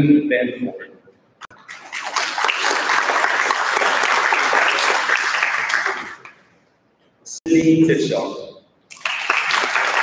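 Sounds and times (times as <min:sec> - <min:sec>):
audience applauding: 0:01.5 - 0:06.5, 0:08.9 - 0:10.0.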